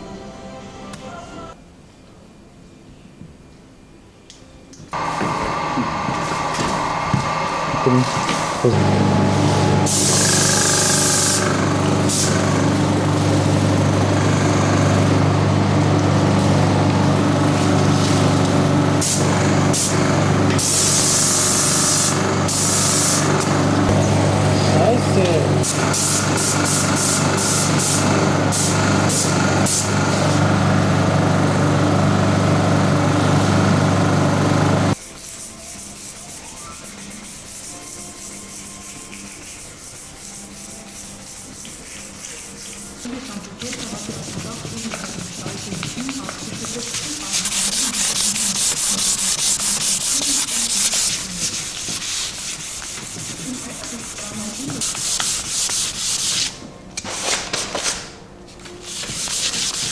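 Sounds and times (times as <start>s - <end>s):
paint sprayer hissing: 5.0s - 15.2s, 17.4s - 30.7s, 37.0s - 56.6s
hand sanding wooden boards: 35.2s - 56.6s, 58.8s - 59.9s.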